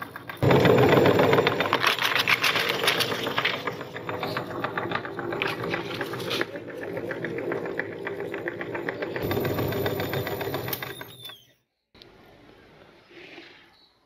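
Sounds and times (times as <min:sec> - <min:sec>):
meat grinder crushing brittle items: 0:00.0 - 0:07.0, 0:09.0 - 0:11.5.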